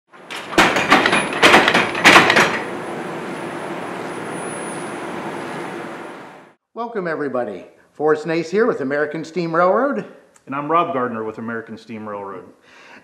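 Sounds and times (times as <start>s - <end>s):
loud metal clanks and bangs: 0.2s - 5.1s
forging machine drone: 0.2s - 6.6s
thin high whine: 2.6s - 6.6s.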